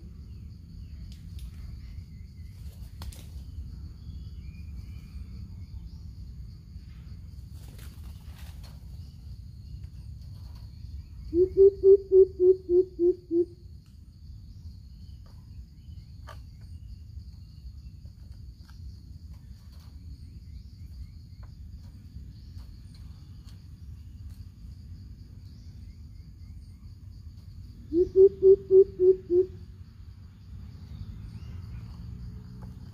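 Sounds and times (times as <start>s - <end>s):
bird deep hoots: 11.2s - 13.6s, 27.8s - 29.6s.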